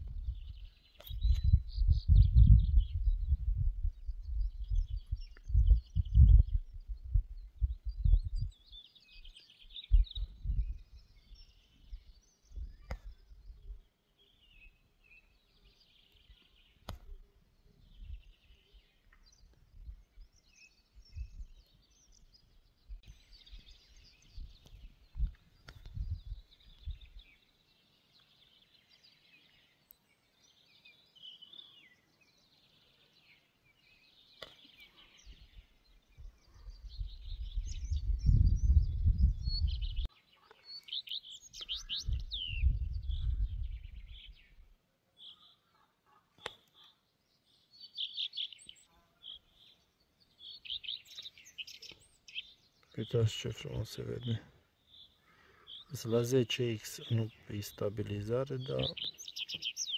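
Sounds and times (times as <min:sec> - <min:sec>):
wind buffeting microphone: 0:00.0 - 0:08.6, 0:09.8 - 0:13.8, 0:21.0 - 0:21.6, 0:22.9 - 0:27.3, 0:35.3 - 0:40.1, 0:41.6 - 0:44.7
small birds chirping and trilling: 0:00.0 - 0:59.9.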